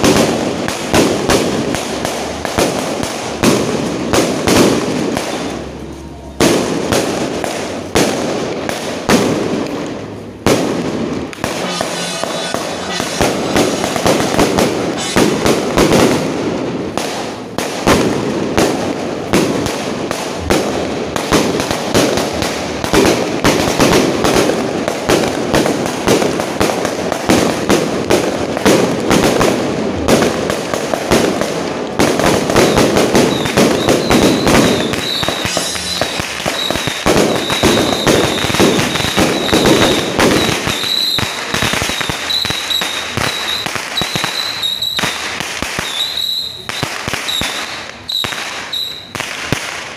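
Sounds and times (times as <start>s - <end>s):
firecrackers banging: 0.0s - 49.9s
thin high tone: 11.5s - 14.3s, 35.1s - 36.8s.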